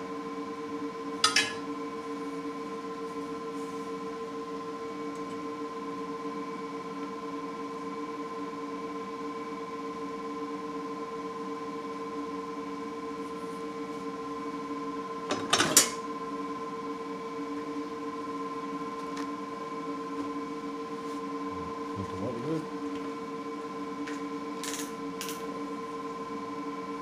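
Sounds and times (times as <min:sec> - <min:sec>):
steady machine hum: 0:16.0 - 0:27.0.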